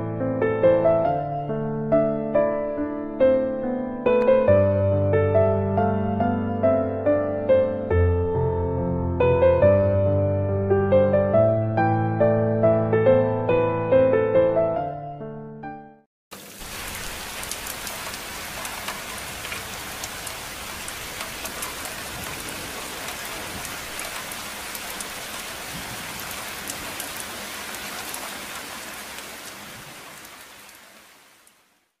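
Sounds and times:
piano melody: 0:00.0 - 0:16.1
rain falling: 0:16.3 - 0:32.0.

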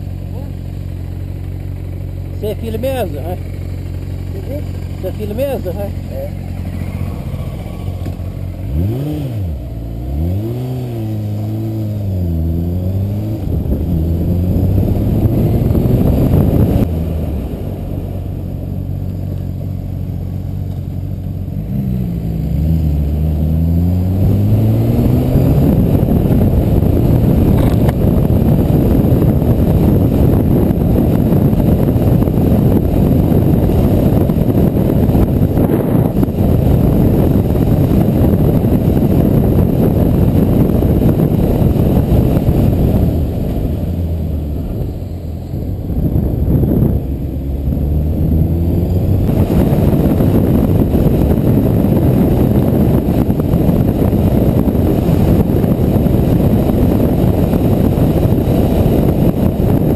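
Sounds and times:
motorcycle engine revving: 0:00.0 - 0:59.9
wind rush: 0:04.4 - 0:19.0, 0:21.6 - 0:59.9.

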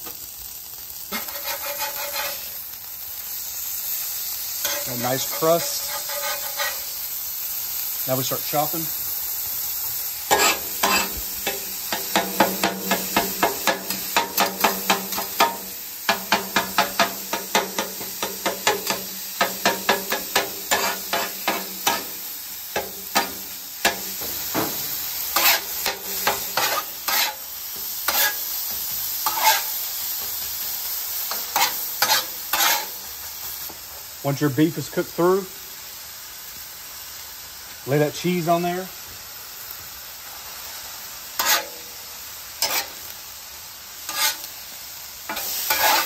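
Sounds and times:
beef sizzling: 0:00.0 - 0:46.0
metal spatulas clacking on griddle: 0:01.1 - 0:02.4, 0:10.3 - 0:22.1, 0:25.4 - 0:27.4, 0:28.1 - 0:30.3, 0:31.3 - 0:32.9, 0:41.4 - 0:41.8, 0:42.6 - 0:42.9, 0:44.1 - 0:44.5, 0:45.3 - 0:46.0.

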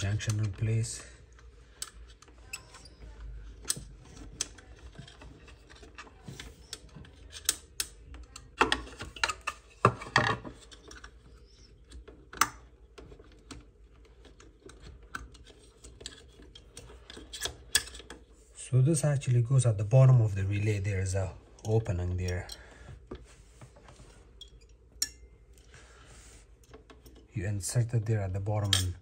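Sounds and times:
small parts clicking and rattling: 0:00.0 - 0:18.3.

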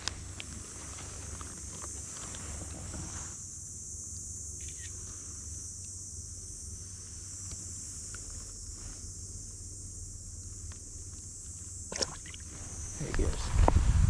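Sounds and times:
high-pitched insect chorus: 0:00.0 - 0:14.0
rustle: 0:00.0 - 0:14.0
faint ticks: 0:05.8 - 0:06.0, 0:07.4 - 0:08.6
low rumble: 0:12.8 - 0:14.0.

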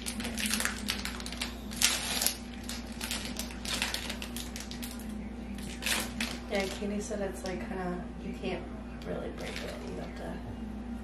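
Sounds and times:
plastic wrapper crinkling: 0:00.0 - 0:07.6, 0:09.4 - 0:10.2.

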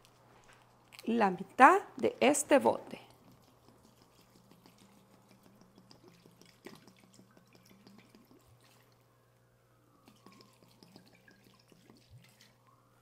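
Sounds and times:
liquid pouring and dripping: 0:03.0 - 0:09.2, 0:10.0 - 0:13.0.

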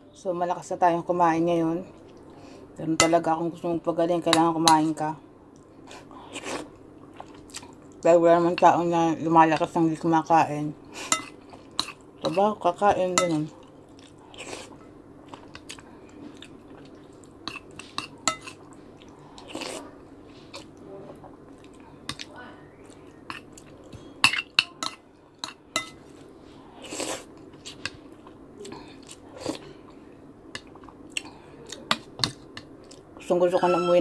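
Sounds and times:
close chewing and eating: 0:05.5 - 0:08.1, 0:11.1 - 0:12.6, 0:13.5 - 0:33.2
spoon clinking against dishes: 0:13.2 - 0:13.4, 0:24.2 - 0:26.0.

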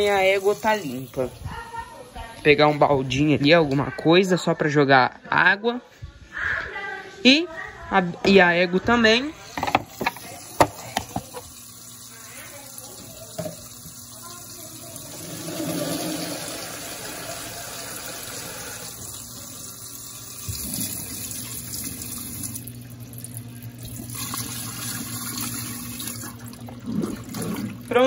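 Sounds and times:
water pouring into plastic tub: 0:10.0 - 0:28.0.

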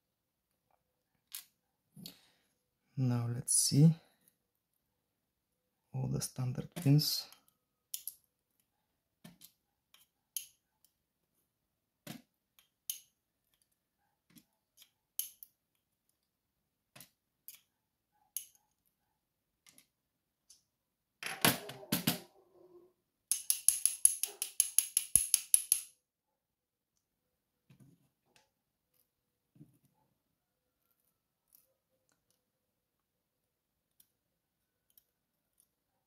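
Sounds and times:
tweezers and pins clicking: 0:06.8 - 0:11.0, 0:12.5 - 0:16.3, 0:16.9 - 0:17.7, 0:18.3 - 0:18.9, 0:23.3 - 0:26.0, 0:33.9 - 0:35.8.

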